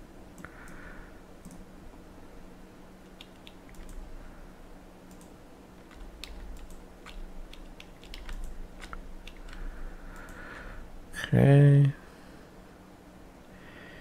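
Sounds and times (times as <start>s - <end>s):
faint steady hum: 0.0s - 14.0s
mouse and keyboard clicking: 3.0s - 4.0s, 5.9s - 10.7s.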